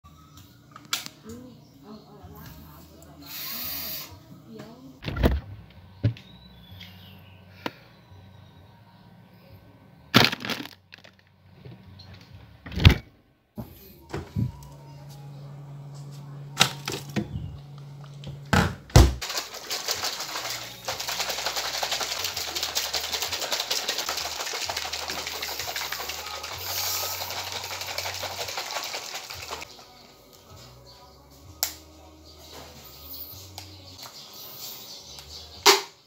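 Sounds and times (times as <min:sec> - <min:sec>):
shaker bottle rattling: 0:19.2 - 0:29.7.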